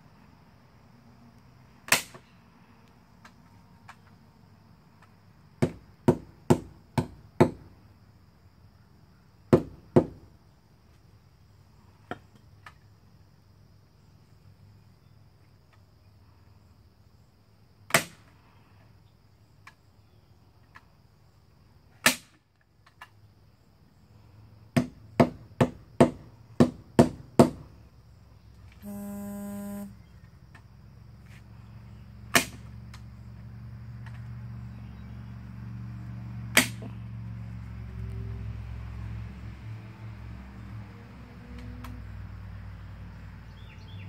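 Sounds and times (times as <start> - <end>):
low hum: 28.8 - 29.9
short buzzing tone: 28.8 - 30.1.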